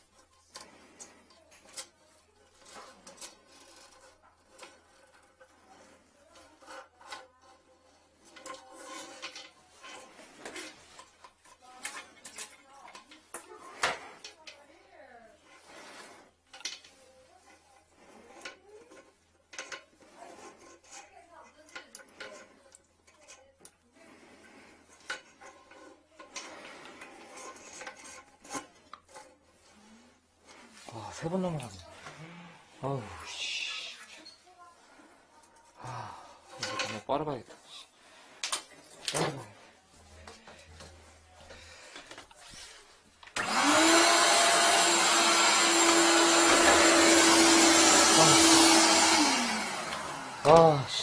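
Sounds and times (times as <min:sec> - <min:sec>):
drain wire scraping porcelain: 0:00.0 - 0:35.7, 0:36.5 - 0:50.8.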